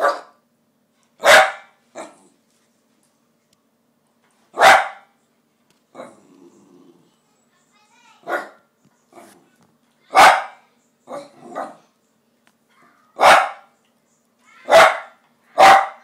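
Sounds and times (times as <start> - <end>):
small dog barking: 0.0 - 0.4, 1.2 - 2.2, 4.6 - 5.1, 8.2 - 9.3, 10.1 - 11.9, 13.2 - 13.7, 14.6 - 16.0.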